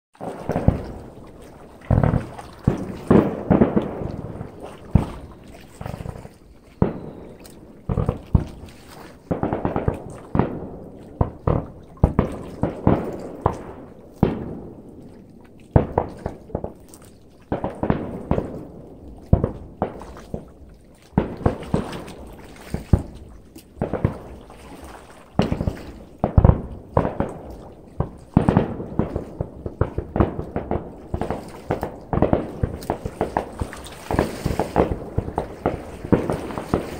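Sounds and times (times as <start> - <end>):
fireworks bursting: 0.2 - 14.6, 26.4 - 36.9.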